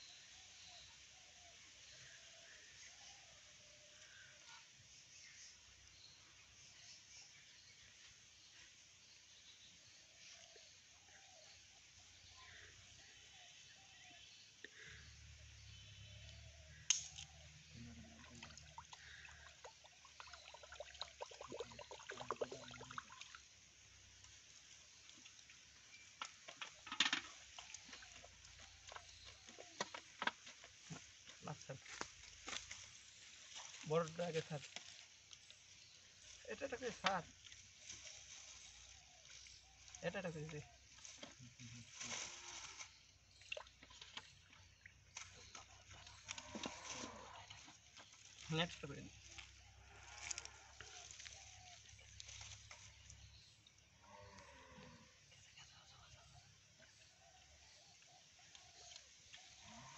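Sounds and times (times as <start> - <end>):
faint outdoor hiss: 0.0 - 59.9
mud squelching and splashing: 16.8 - 24.3, 43.3 - 53.5.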